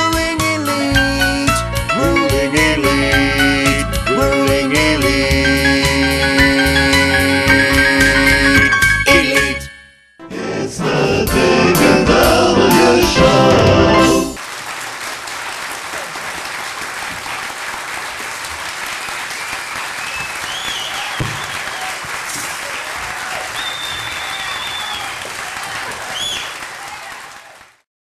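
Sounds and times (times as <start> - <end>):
audience applauding and cheering: 12.8 - 27.8
high whoops: 20.1 - 22.1, 22.7 - 27.6.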